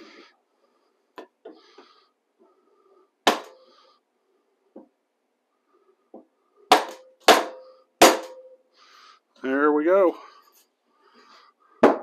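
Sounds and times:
hammer striking wooden drift: 0:03.2 - 0:03.7, 0:06.7 - 0:08.6.

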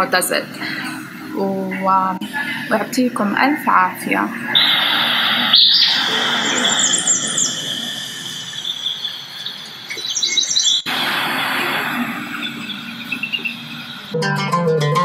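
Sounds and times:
high-pitched chirping: 0:04.5 - 0:14.2
steady high whistle: 0:04.5 - 0:14.2.

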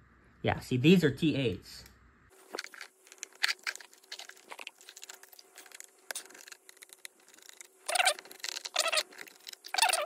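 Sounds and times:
fingertip rubbing paper label: 0:03.1 - 0:10.0.

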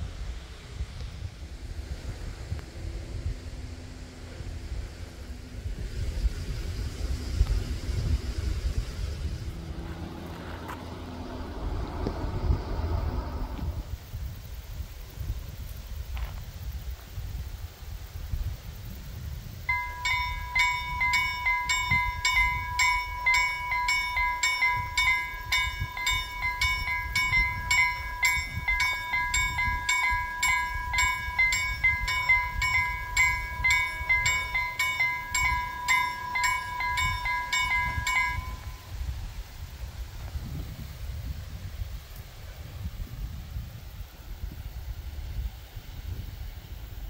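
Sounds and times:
level-crossing warning bells ringing: 0:09.7 - 0:13.9, 0:19.7 - 0:39.2.

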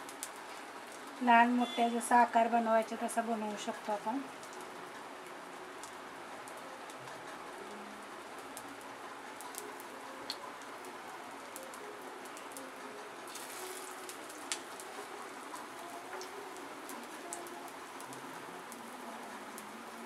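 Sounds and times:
patty sizzling on a griddle: 0:00.0 - 0:20.0.

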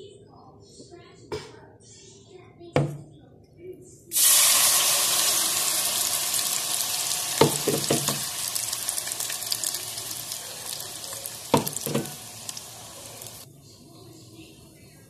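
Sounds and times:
paste sizzling in hot oil: 0:04.1 - 0:13.4
stirring knocks: 0:07.4 - 0:08.3, 0:11.5 - 0:12.3.

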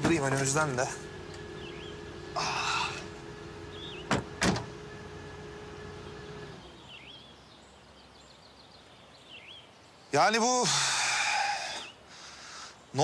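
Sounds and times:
low steady hum: 0:00.0 - 0:07.8
bird chirping: 0:00.0 - 0:10.7
car doors slamming shut: 0:03.7 - 0:04.9.

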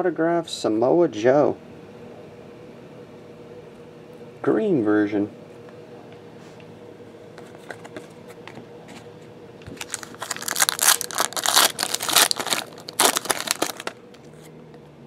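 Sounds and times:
foil wrapper crinkling and tearing: 0:09.7 - 0:14.0.

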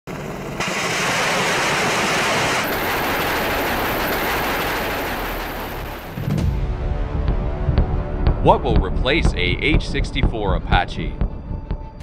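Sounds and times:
helicopter rotor and turbine: 0:00.1 - 0:06.4.

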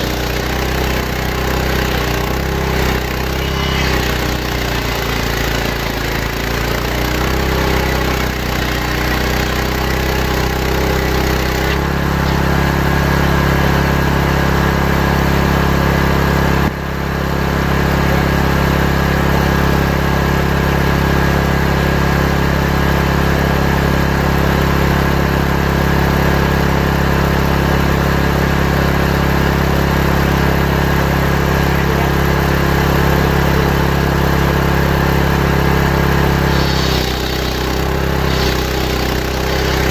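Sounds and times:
circular saw cutting wood: 0:00.0 - 0:13.8, 0:36.2 - 0:39.9.

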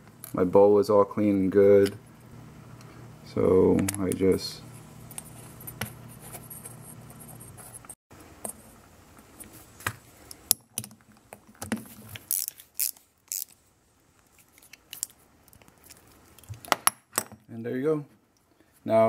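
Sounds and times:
metal parts clicking and scraping: 0:12.1 - 0:13.6.

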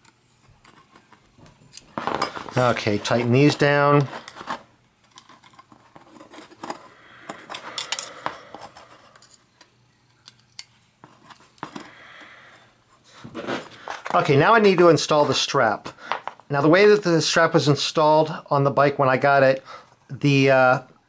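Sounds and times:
screwdriver clicking and scraping: 0:04.0 - 0:11.9.

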